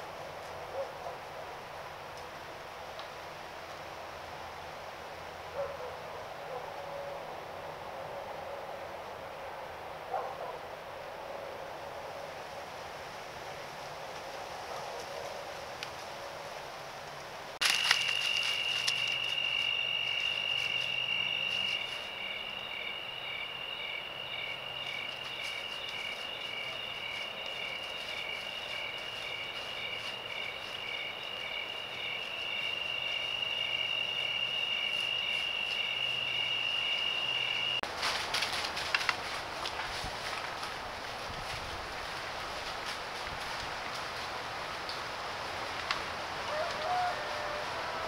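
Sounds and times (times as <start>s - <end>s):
clicks and rustles in dry leaves: 17.6s - 22.5s, 24.8s - 32.9s, 37.8s - 47.6s
insect chirping in pulses: 17.6s - 37.8s
insect high steady trill: 17.6s - 37.8s.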